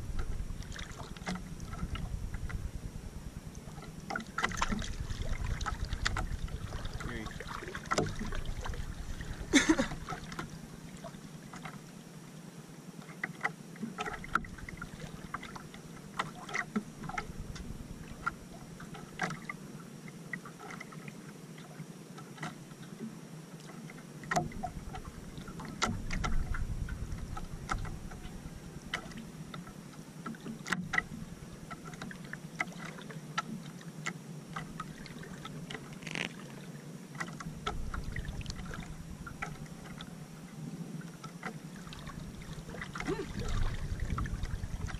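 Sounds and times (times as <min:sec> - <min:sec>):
low rumble: 0:00.0 - 0:11.5, 0:14.2 - 0:16.0, 0:16.8 - 0:18.9, 0:24.5 - 0:29.8, 0:30.9 - 0:32.0, 0:37.4 - 0:40.6, 0:41.7 - 0:44.9
waves lapping against a hull: 0:00.0 - 0:44.9.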